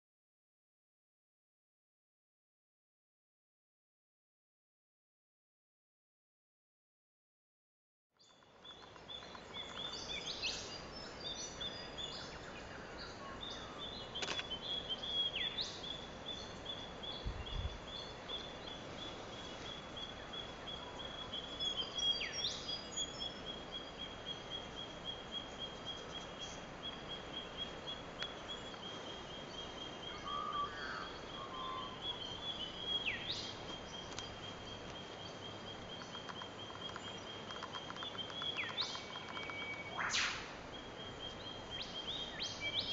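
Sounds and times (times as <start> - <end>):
background hiss: 8.2 - 42.9
bird calls sweeping down: 38.8 - 40.6.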